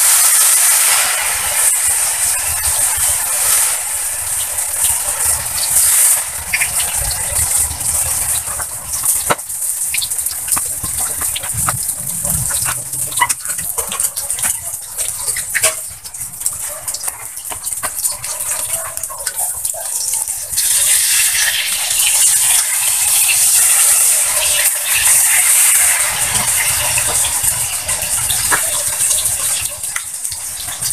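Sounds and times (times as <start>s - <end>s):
omelette sizzling in hot oil: 0.0s - 30.9s
sharp crackles: 1.6s - 20.6s.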